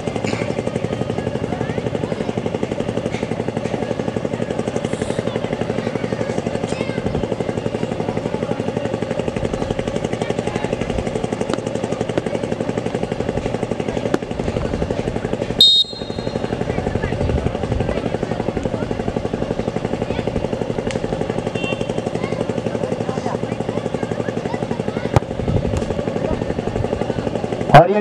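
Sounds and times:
small engine running: 0.0s - 28.0s.

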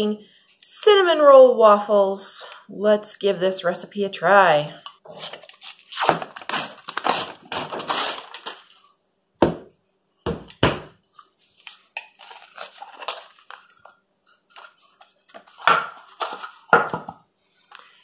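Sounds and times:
cardboard crinkling: 5.1s - 8.9s, 11.2s - 16.8s
paper wrapper rustling and tearing: 5.1s - 8.9s, 11.2s - 16.7s.

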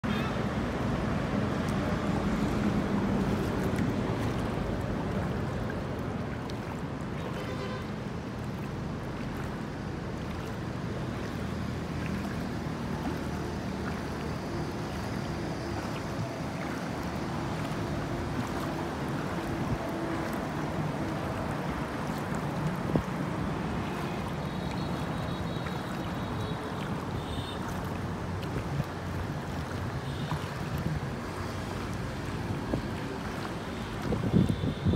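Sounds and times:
floodwater rushing: 0.0s - 34.9s
wind on microphone: 33.9s - 34.9s.

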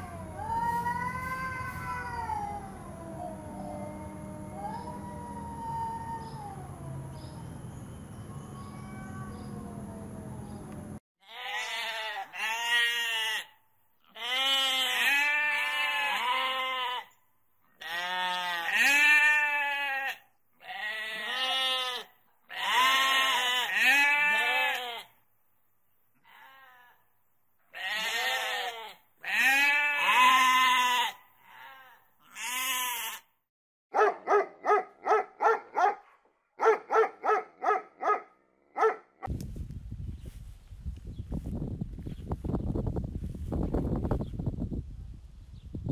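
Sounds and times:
sheep bleating: 11.2s - 17.1s, 17.8s - 25.1s, 26.2s - 27.0s, 27.7s - 33.3s
dog barking: 33.9s - 39.1s.

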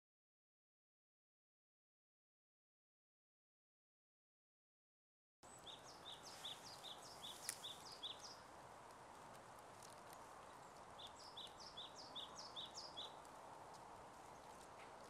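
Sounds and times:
small bird chirping: 5.4s - 8.5s, 9.6s - 15.0s.

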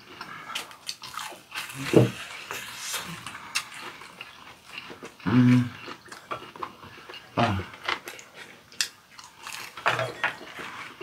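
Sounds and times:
people chewing with wet smacks: 0.0s - 11.0s
person humming low: 5.2s - 5.8s.

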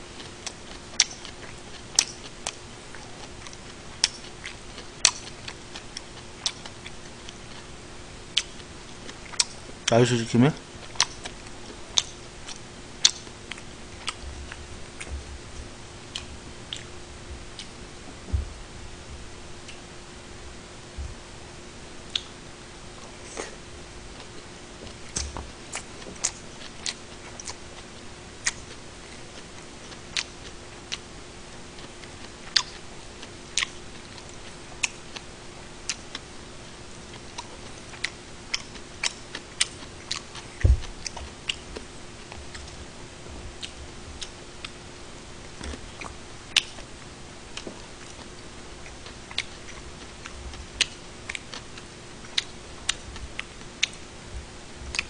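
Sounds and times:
faint steady hum: 0.0s - 55.0s
dull thump: 18.2s - 19.2s, 40.6s - 41.0s.

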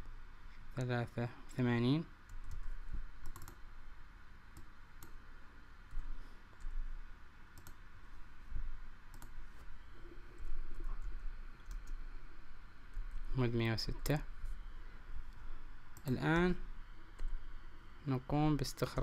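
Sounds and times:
low steady hum: 0.0s - 19.0s
mouse clicks: 3.2s - 3.6s, 7.6s - 7.8s, 9.1s - 9.4s.

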